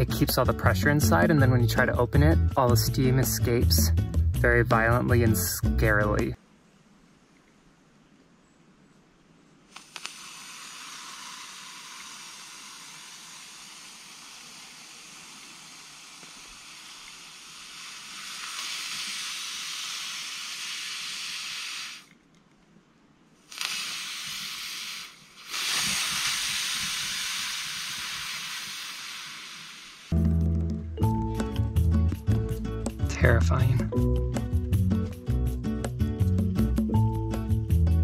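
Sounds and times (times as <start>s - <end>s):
steam hissing: 9.7s - 22.1s, 23.4s - 30.2s.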